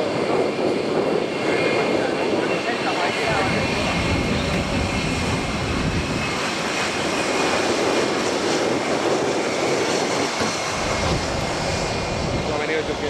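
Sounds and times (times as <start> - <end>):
jet passing close: 0.0 - 13.0.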